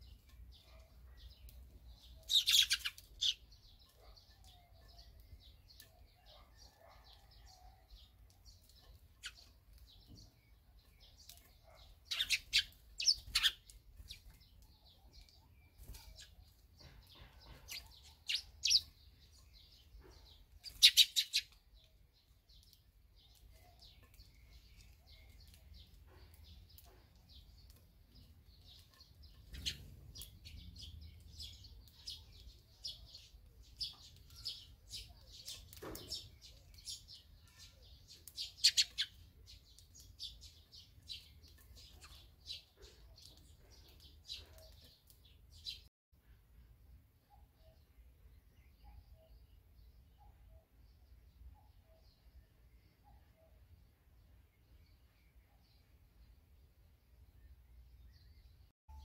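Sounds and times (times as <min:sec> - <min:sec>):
swallows chirping and twittering: 0:00.0 - 0:59.0.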